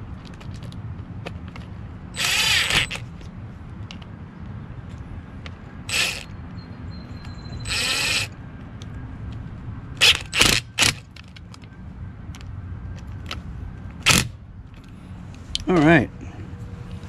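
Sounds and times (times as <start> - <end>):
cordless drill whirring: 2.2 - 3.0, 5.9 - 6.3, 7.6 - 8.4.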